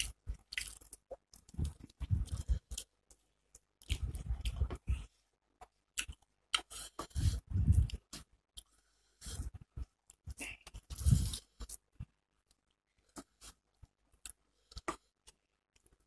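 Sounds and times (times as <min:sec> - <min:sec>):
close chewing with mouth smacks: 0:00.0 - 0:05.1, 0:05.9 - 0:08.7.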